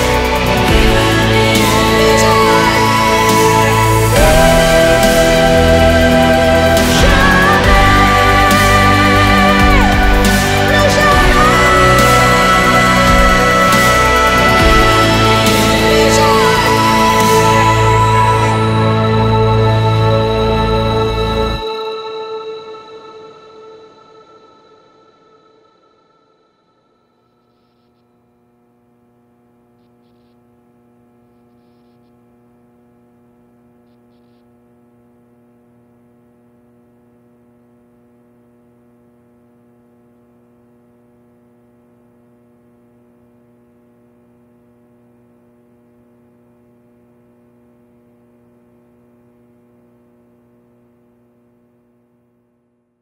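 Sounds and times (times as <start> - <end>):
low electrical hum: 26.6 - 53.0.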